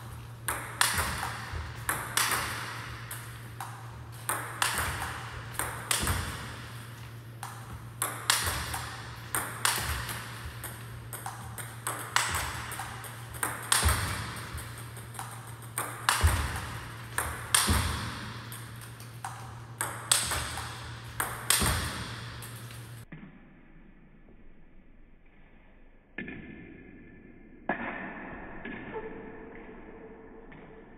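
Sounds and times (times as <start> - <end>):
table tennis ball hitting rackets: 0.0 - 23.3
steady low hum: 0.0 - 26.0
ball bouncing on table: 0.4 - 6.8, 7.4 - 23.3.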